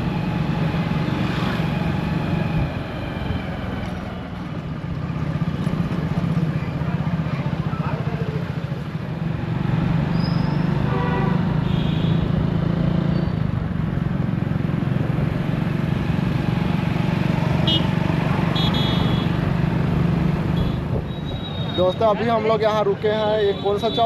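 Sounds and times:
vehicle horn toots: 0:10.8 - 0:12.2, 0:17.6 - 0:17.9, 0:18.5 - 0:19.4, 0:20.6 - 0:21.6.

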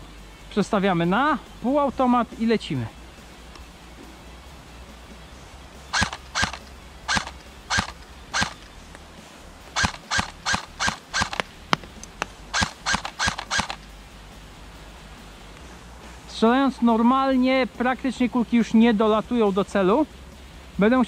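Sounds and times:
airsoft rifle single shots: 0:05.9 - 0:08.7, 0:09.8 - 0:11.8, 0:12.5 - 0:13.8.

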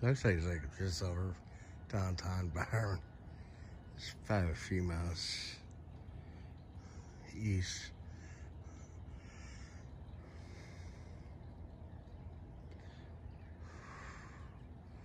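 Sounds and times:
low background hum: 0:00.0 - 0:15.0
soft breathing close to microphone: 0:07.9 - 0:12.0, 0:12.6 - 0:15.0.

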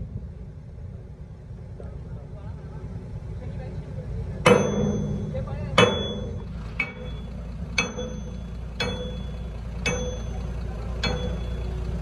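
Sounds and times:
low rumble: 0:00.0 - 0:12.0
hammer clanging on steel: 0:04.4 - 0:11.7.

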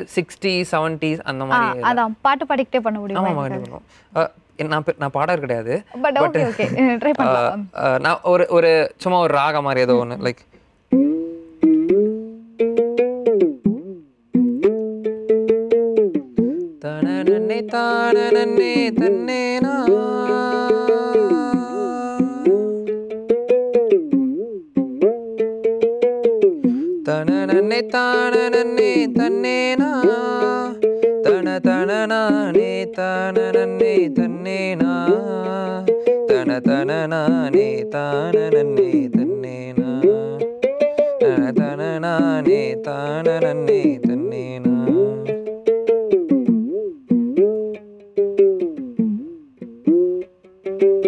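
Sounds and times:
plucked one-string drum: 0:10.9 - 0:51.0.

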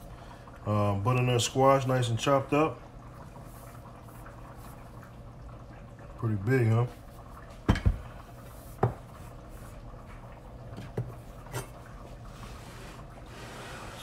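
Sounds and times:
knocks on cutting board: 0:07.7 - 0:08.0, 0:08.8 - 0:09.0.

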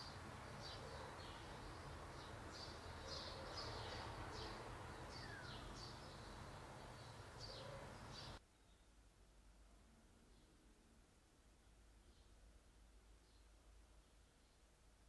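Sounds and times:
small birds chirping: 0:00.0 - 0:08.9, 0:11.6 - 0:12.4
low outdoor background noise: 0:00.0 - 0:15.0.

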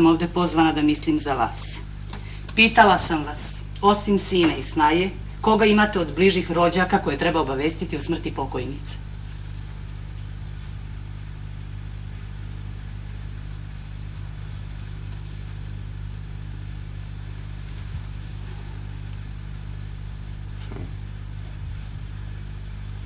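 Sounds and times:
low mains hum and hiss: 0:00.0 - 0:23.0.

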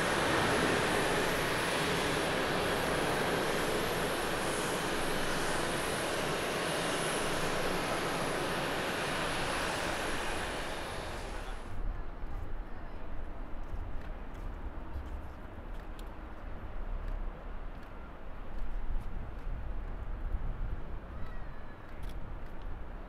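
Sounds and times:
jet engines rushing: 0:00.0 - 0:11.7.

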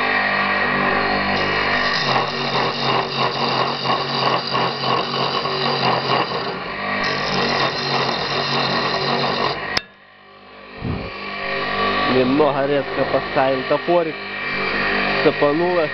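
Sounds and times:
electric motor humming: 0:00.0 - 0:09.9, 0:10.8 - 0:15.9
axe blade scraping spinning wood: 0:01.4 - 0:09.8.

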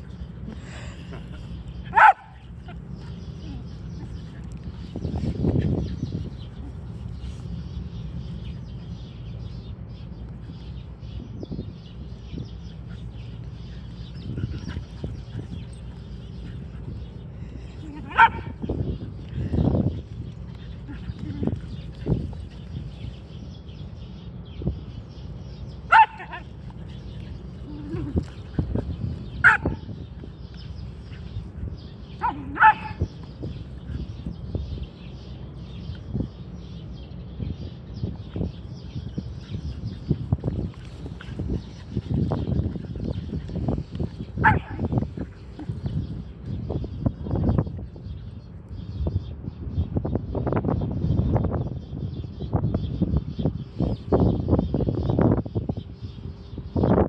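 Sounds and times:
wind rumble on microphone: 0:00.0 - 0:57.0
dog barking: 0:01.9 - 0:02.3, 0:25.9 - 0:26.4, 0:32.2 - 0:33.0, 0:44.4 - 0:44.8.

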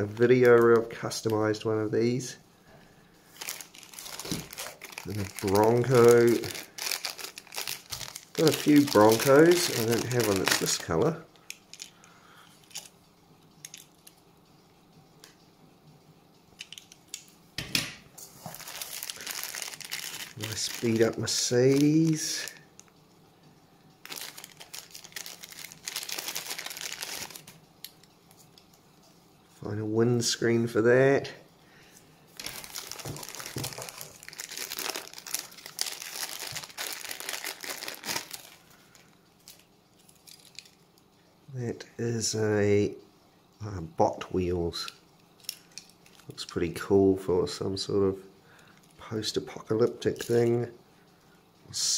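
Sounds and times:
plastic bags crinkling: 0:00.0 - 0:01.6, 0:03.2 - 0:12.0, 0:12.6 - 0:13.0, 0:18.3 - 0:22.8, 0:24.0 - 0:28.0, 0:32.3 - 0:40.8, 0:45.4 - 0:46.6.

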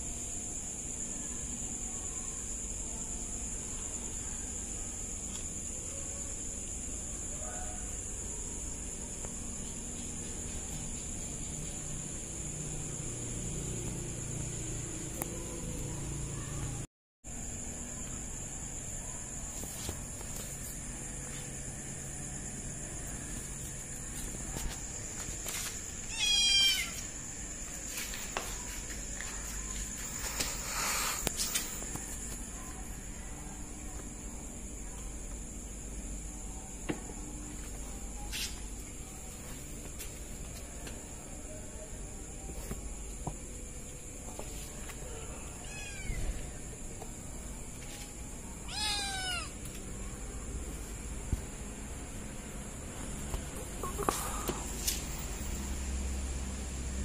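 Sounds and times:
kitten meowing: 0:26.1 - 0:27.0, 0:45.6 - 0:46.2, 0:48.6 - 0:49.6.

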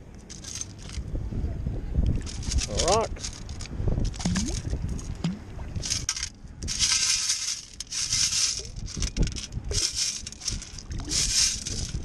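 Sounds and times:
water dripping: 0:04.2 - 0:05.6
pebbles grating on metal scoop: 0:05.8 - 0:12.0.

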